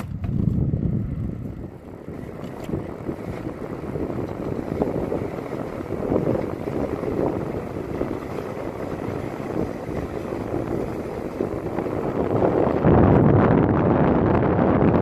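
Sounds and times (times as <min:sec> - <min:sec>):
wheels rumbling on asphalt: 0:00.0 - 0:15.0
wind rushing over microphone: 0:00.0 - 0:15.0.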